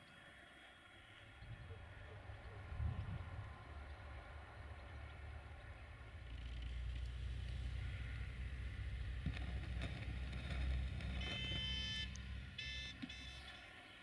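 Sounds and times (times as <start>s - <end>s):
diesel locomotive engine rumble: 1.1s - 13.2s
high-pitched multi-tone ringing: 11.2s - 13.7s.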